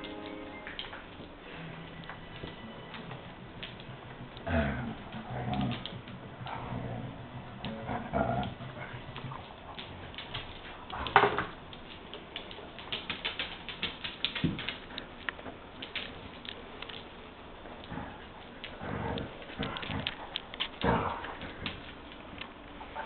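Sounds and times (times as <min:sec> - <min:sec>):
dog grumbling: 0:04.4 - 0:09.4
rapid clicking: 0:08.4 - 0:17.1.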